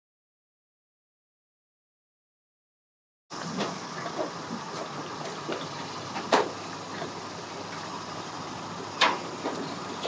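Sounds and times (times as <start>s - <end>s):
outdoor background noise: 3.3s - 10.0s.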